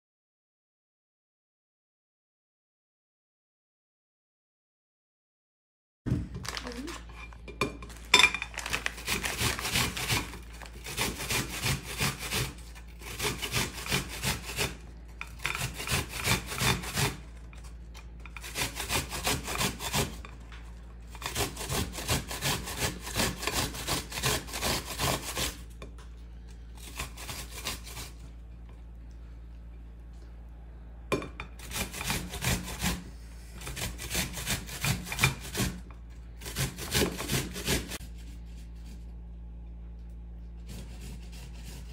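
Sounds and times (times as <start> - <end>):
onion grating on metal grater: 8.6 - 20.4, 21.1 - 25.8, 26.8 - 28.2, 31.6 - 39.2, 40.6 - 41.9.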